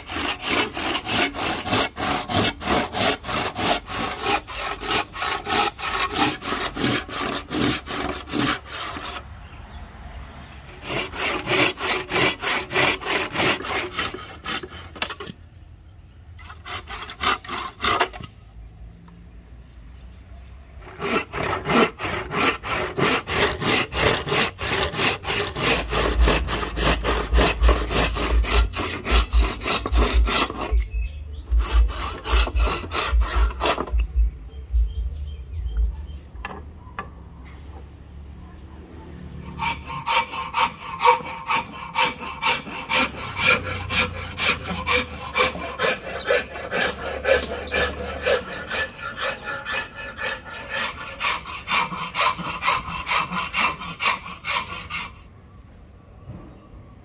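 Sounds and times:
hand saw cutting wood: 0:00.0 - 0:09.2, 0:10.7 - 0:15.4, 0:16.4 - 0:18.4, 0:20.8 - 0:34.1, 0:39.4 - 0:55.3.

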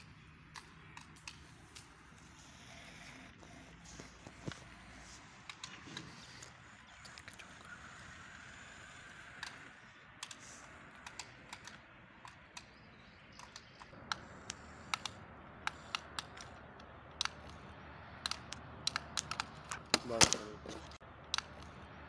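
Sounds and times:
sharp plastic toy clicks: 0:09.2 - 0:17.6, 0:18.2 - 0:20.5.

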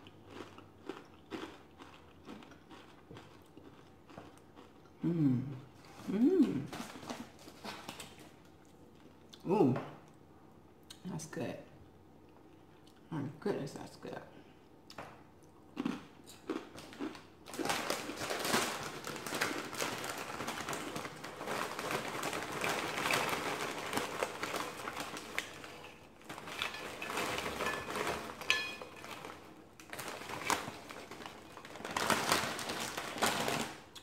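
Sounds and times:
plastic bag crinkling: 0:06.6 - 0:08.4, 0:16.8 - 0:34.0
chips clattering onto plate: 0:17.6 - 0:33.7.

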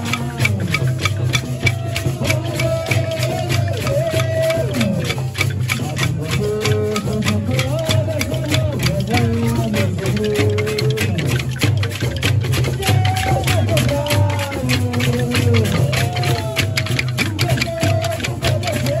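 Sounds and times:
person singing into microphone: 0:00.0 - 0:05.2, 0:12.8 - 0:19.0
deep frame drum beat: 0:00.0 - 0:19.0
metal shaker: 0:00.0 - 0:19.0
wooden clappers clattering: 0:00.0 - 0:19.0.

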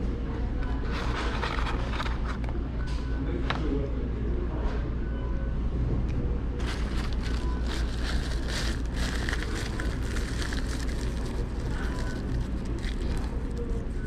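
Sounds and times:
steady low hum: 0:00.0 - 0:14.0
foil wrapper crinkling: 0:06.6 - 0:14.0.

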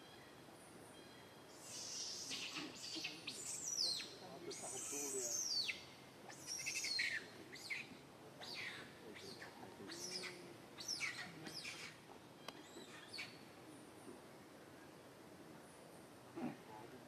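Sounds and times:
high-pitched chirping calls: 0:01.6 - 0:13.4.

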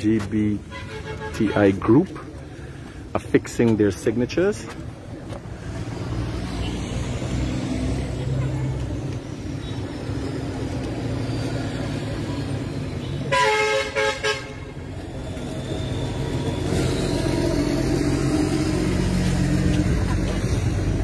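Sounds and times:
road traffic rumble: 0:00.0 - 0:21.0
vehicle horn honking: 0:00.7 - 0:01.8, 0:13.0 - 0:14.8.

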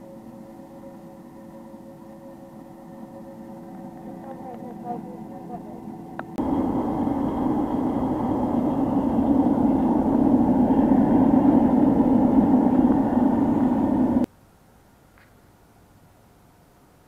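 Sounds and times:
blower rushing noise: 0:03.6 - 0:14.3.

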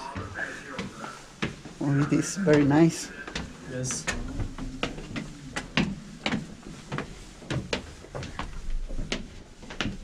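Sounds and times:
boot footsteps on stone stairs: 0:00.0 - 0:10.0.

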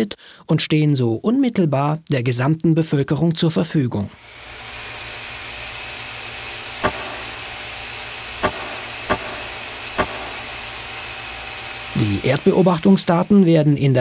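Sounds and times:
faint high whine: 0:04.1 - 0:14.0
cooling fans whirring: 0:04.2 - 0:14.0
sharp clicks: 0:06.8 - 0:10.9.

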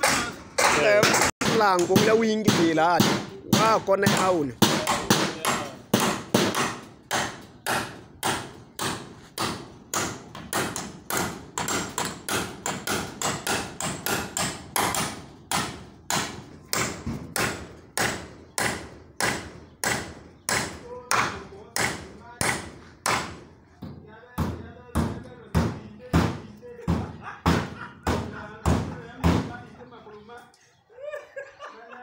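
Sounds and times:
hammer driving nails into wood: 0:00.0 - 0:23.4.

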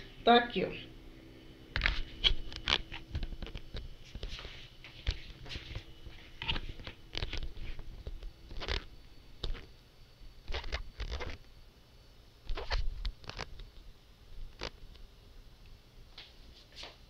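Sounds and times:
camera handling noise: 0:06.4 - 0:09.7.

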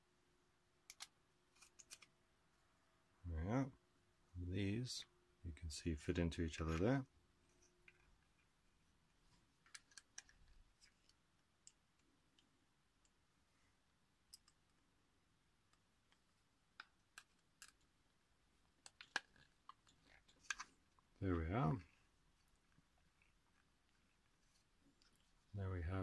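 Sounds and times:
plastic parts clicking: 0:00.9 - 0:02.1.

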